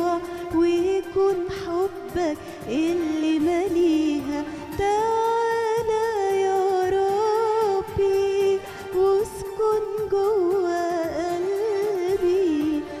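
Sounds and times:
woman singing into a microphone: 0.0 - 13.0.

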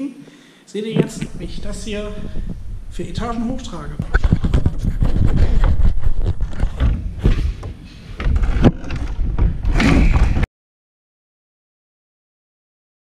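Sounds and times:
low handling rumble: 1.0 - 10.4.

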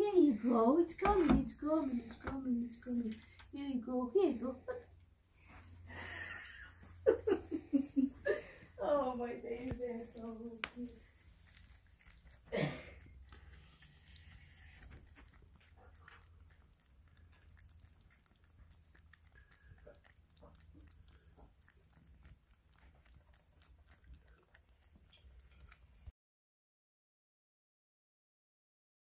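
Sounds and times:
low steady hum: 0.0 - 26.1
kittens chewing and licking: 4.7 - 26.1.

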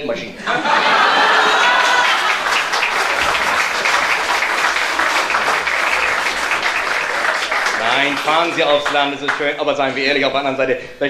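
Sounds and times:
audience laughter: 0.4 - 7.8
audience applauding: 0.7 - 10.2.

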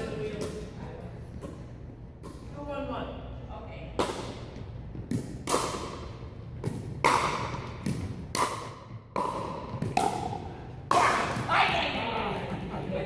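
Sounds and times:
ball bouncing on hardwood floor: 6.6 - 10.4.

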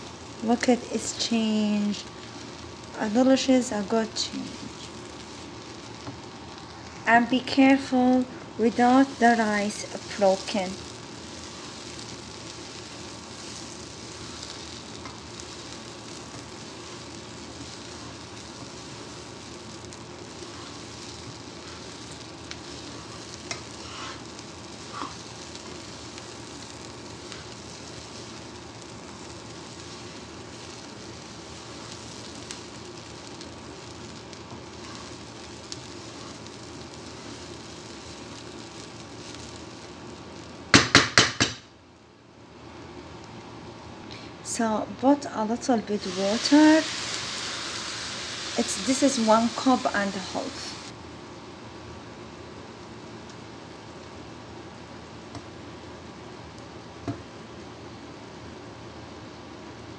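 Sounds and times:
rice and vegetables sizzling in a pan: 0.0 - 59.9
spatula scraping a pan: 20.3 - 25.3.

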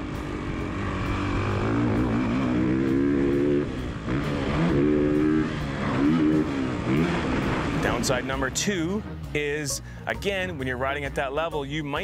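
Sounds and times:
dirt bike engine revving: 0.0 - 9.4.

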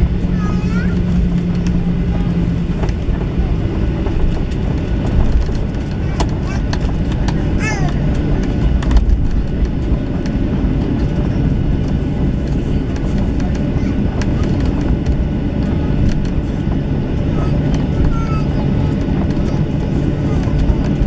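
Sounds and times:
aircraft cabin engine drone: 0.0 - 21.0
airframe rolling over taxiway: 0.0 - 21.0.

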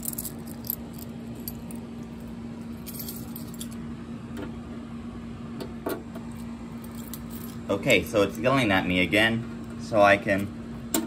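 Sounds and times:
keys jangling: 0.0 - 1.8, 2.7 - 3.8, 6.8 - 7.6
steady low hum: 0.0 - 11.0.

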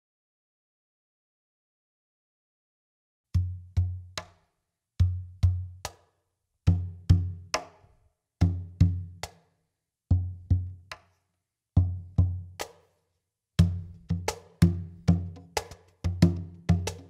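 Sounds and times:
cajon snare slap: 13.6 - 17.0.

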